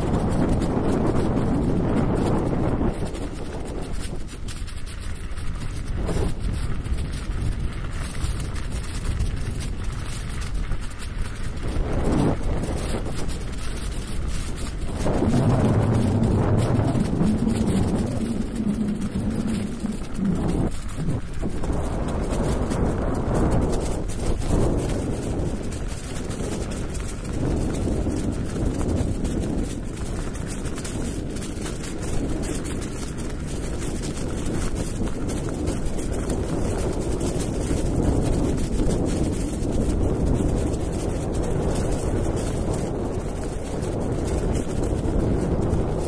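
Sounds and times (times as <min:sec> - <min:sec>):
wind buffeting microphone: 0:00.0 - 0:46.0.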